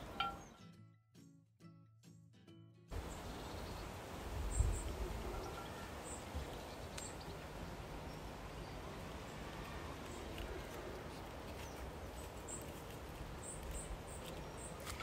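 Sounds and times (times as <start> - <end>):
faint high bird chirps: 4.5 - 7.4.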